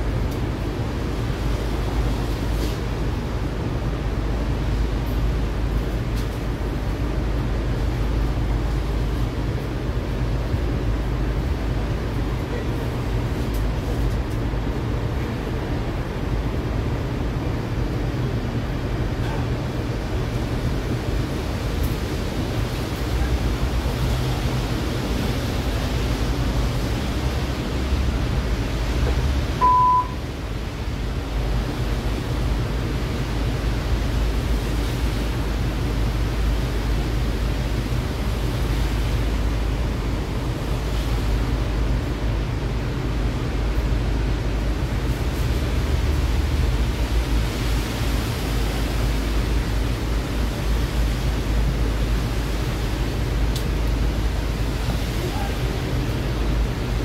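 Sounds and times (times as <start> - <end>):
metro car rumble and hiss: 0.0 - 57.0
short high electronic beep: 29.6 - 30.2.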